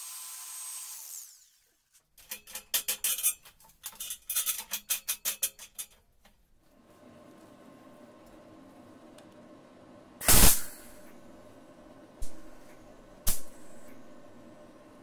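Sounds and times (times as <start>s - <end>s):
grinder hiss: 0.0s - 1.7s, 10.2s - 11.1s.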